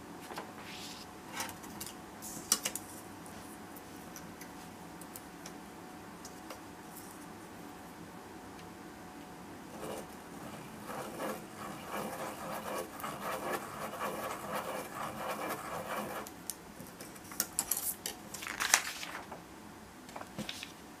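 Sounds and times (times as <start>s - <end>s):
pen scratching on paper: 9.8s - 16.3s
paper rustle: 17.7s - 19.4s, 20.1s - 20.8s.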